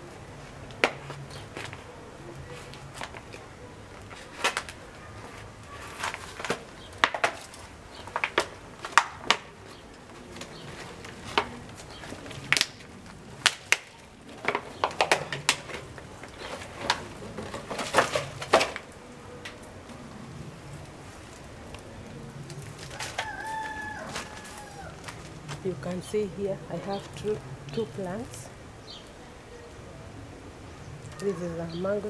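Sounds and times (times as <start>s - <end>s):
plant pot and dry soil handled: 0.5s - 19.5s, 20.8s - 26.1s.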